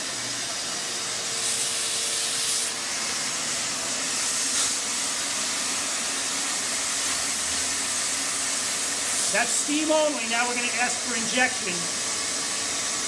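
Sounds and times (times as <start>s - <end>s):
wet dry vacuum humming: 0.0s - 13.0s
steam hissing: 1.2s - 13.0s.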